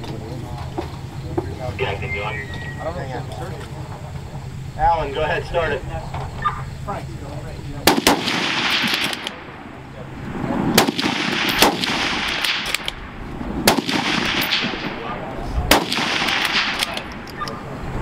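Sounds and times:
gunshots echoing outdoors: 7.6s - 17.8s.

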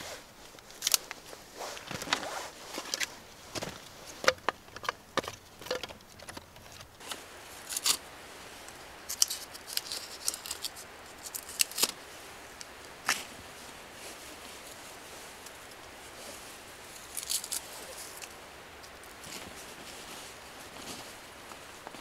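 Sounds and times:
dry wood snapping and scraping: 0.5s - 8.0s, 9.0s - 12.0s, 17.0s - 19.4s.

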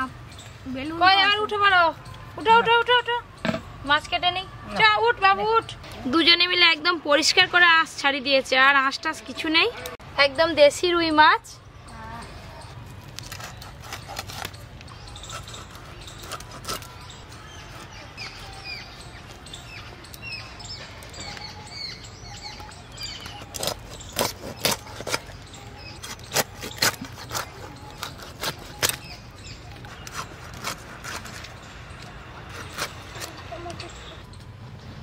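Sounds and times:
birds chirping: 0.0s - 35.0s
knife chopping fish through bone: 23.3s - 33.4s.

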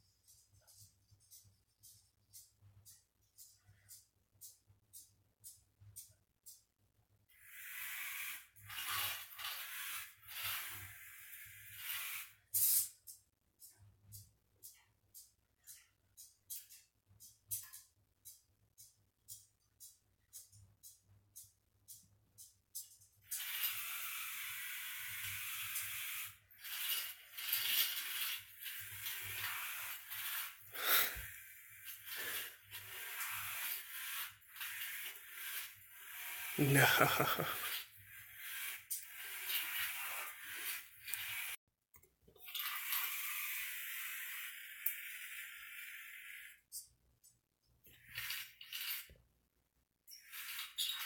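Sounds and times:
robot car motors whirring: 7.3s - 12.5s, 23.2s - 41.6s, 42.5s - 46.6s.

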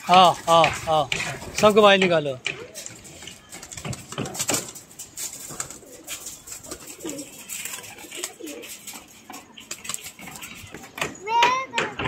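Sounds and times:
pigeons cooing: 2.4s - 11.1s.

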